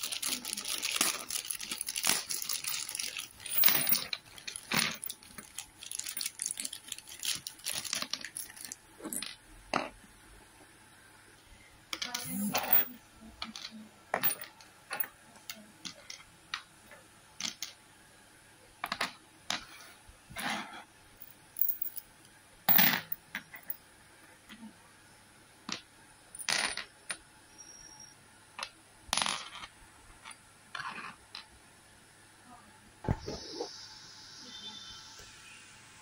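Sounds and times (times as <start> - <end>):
screws clinking on wooden table: 3.4 - 5.2, 22.7 - 23.8.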